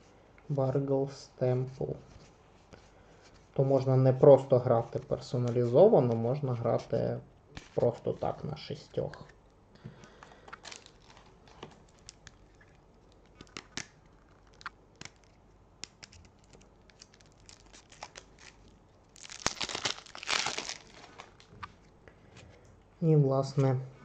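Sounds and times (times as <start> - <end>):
plastic wrapping crinkling: 10.1 - 21.9.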